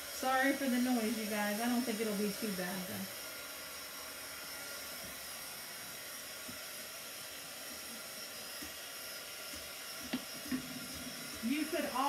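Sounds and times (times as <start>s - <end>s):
heat gun blowing air: 0.0s - 12.0s.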